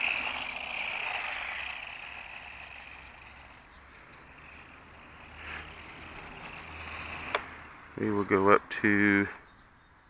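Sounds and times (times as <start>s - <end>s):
small electric motors whining: 0.0s - 7.8s.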